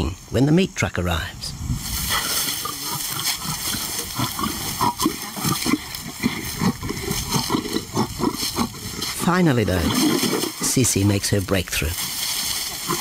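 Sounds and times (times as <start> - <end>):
lion growling: 2.0 - 10.7, 12.5 - 13.0.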